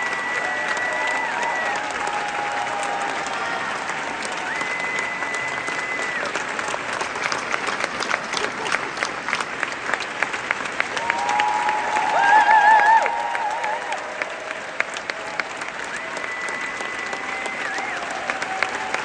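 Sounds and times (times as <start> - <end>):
high-pitched cheers: 0.0 - 6.7, 10.9 - 19.0
audience applauding: 0.0 - 19.0.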